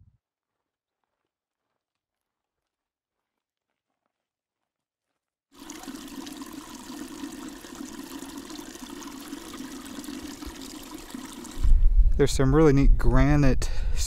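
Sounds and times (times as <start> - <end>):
stream splashing into a pool: 5.6 - 11.7.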